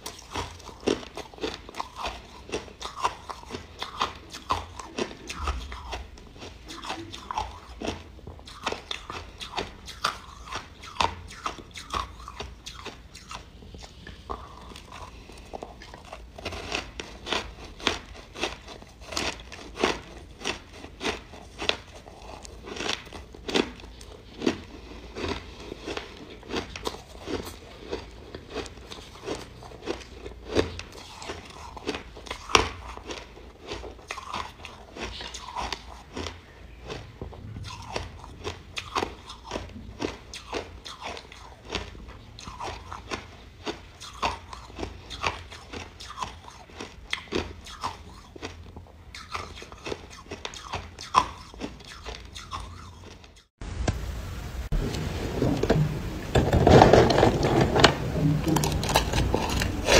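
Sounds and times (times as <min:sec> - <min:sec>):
crunching ice: 0:14.4 - 0:37.1, 0:56.4 - 0:59.9.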